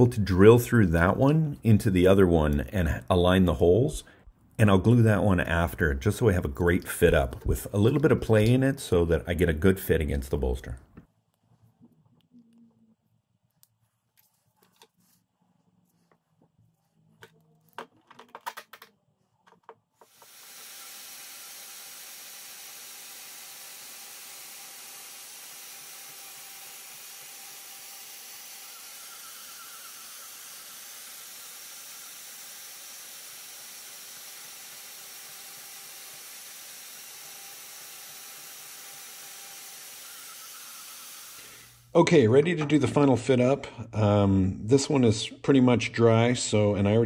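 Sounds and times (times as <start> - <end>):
bandsaw cutting wood: 20.0 - 41.8.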